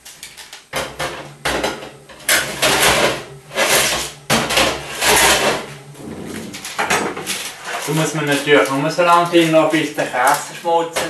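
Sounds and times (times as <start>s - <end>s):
baking tray scraping oven rack: 2.2s - 10.9s.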